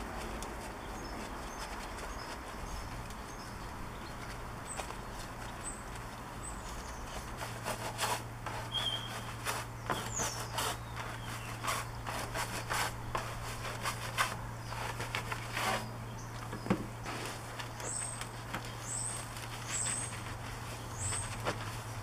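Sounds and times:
brushes scrubbing a wheel: 4.7s - 16.0s, 17.1s - 22.0s
bird chirps: 8.7s - 12.0s.

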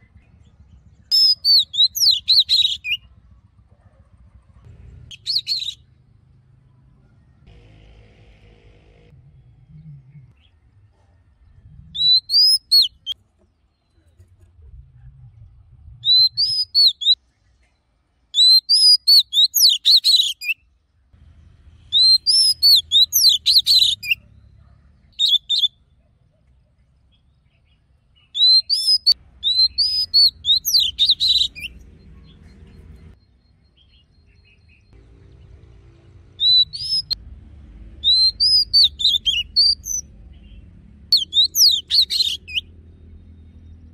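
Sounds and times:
magpie-robin whistled song: 0.8s - 3.1s, 5.1s - 5.9s, 11.9s - 13.2s, 16.0s - 17.2s, 18.3s - 20.7s, 21.9s - 24.3s, 25.1s - 25.8s, 28.2s - 35.0s, 36.4s - 37.2s, 38.0s - 42.7s.

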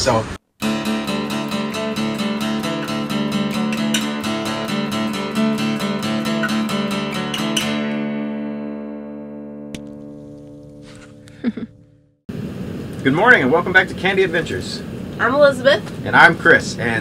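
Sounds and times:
acoustic guitar strumming: 0.5s - 12.2s.

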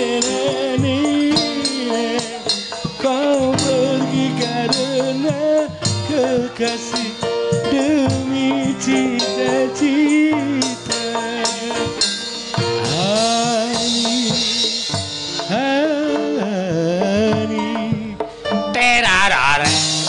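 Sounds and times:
hand drums playing: 0.0s - 20.0s
person singing: 0.0s - 20.0s
gamelan ensemble playing: 18.4s - 20.0s.

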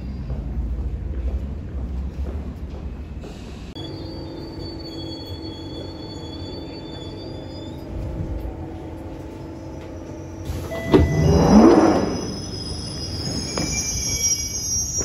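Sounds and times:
train pulling away with rising whine: 3.2s - 15.0s
train jolt: 10.4s - 14.4s.

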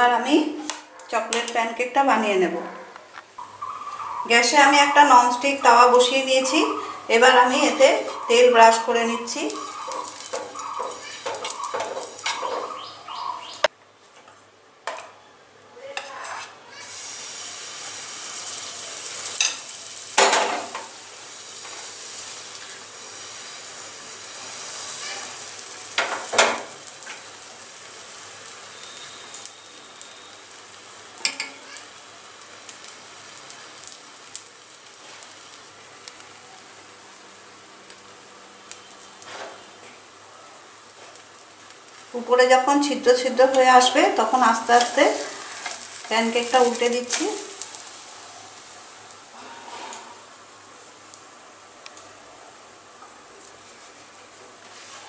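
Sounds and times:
batter sizzling: 3.4s - 13.7s, 16.1s - 55.0s
brush strokes on a pan: 48.6s - 51.0s, 52.4s - 55.0s.

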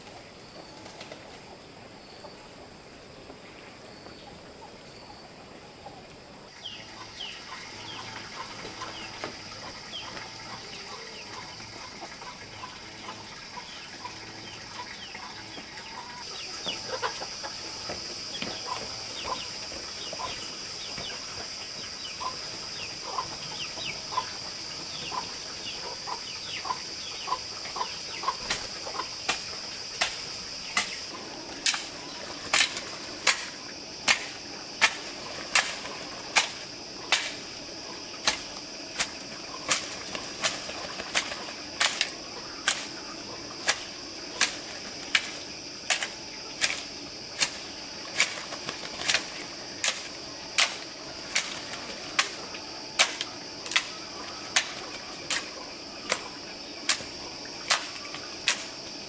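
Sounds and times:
chickens chirping: 6.6s - 29.2s.

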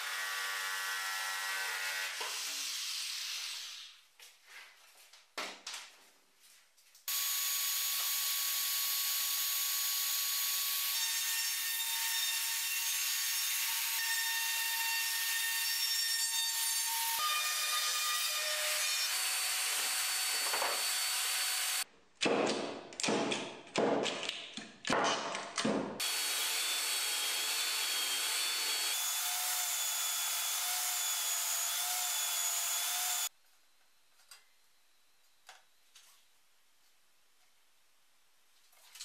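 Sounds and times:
router cutting wood: 7.1s - 21.8s, 26.0s - 33.3s.

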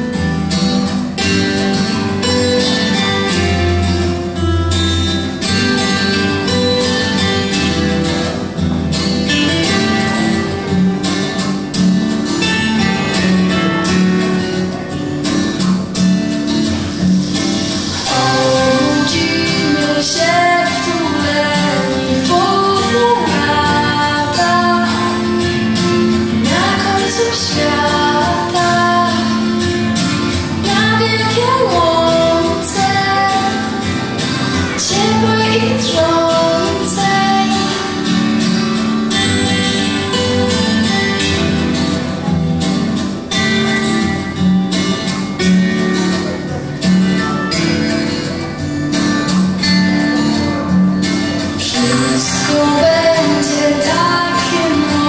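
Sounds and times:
strummed guitar: 0.0s - 55.0s
woman singing: 18.0s - 29.8s, 30.6s - 38.2s, 51.6s - 55.0s.

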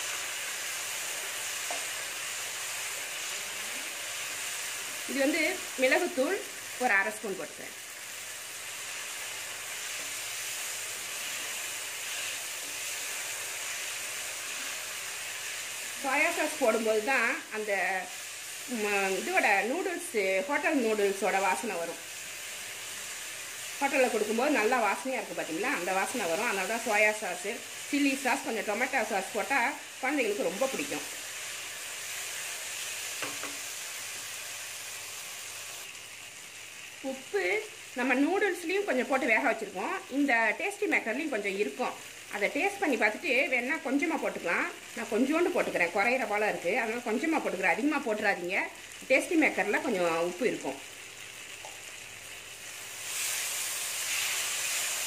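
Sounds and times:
vegetables sizzling in a pan: 0.0s - 55.0s.

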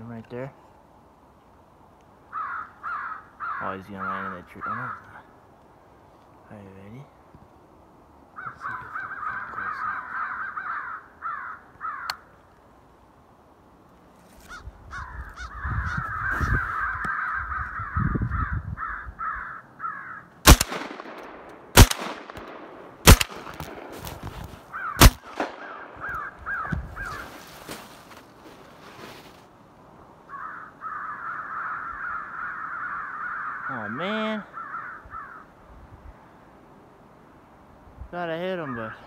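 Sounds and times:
electronic crow caws: 2.3s - 5.3s, 8.4s - 12.3s, 14.5s - 20.4s, 24.7s - 27.4s, 30.3s - 35.6s
shotgun shots: 20.4s - 24.3s, 25.0s - 26.2s.

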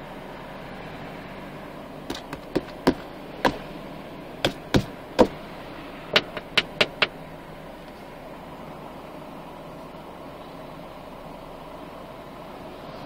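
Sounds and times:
low traffic hum: 0.0s - 13.0s
knocks on car body and glass: 2.1s - 3.7s, 4.5s - 5.4s, 6.2s - 7.2s.

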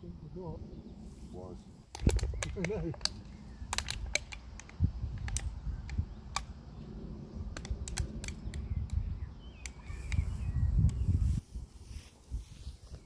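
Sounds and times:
steady low rumble: 0.0s - 13.0s
sharp clicks and ticks: 1.9s - 6.6s, 7.4s - 11.0s.

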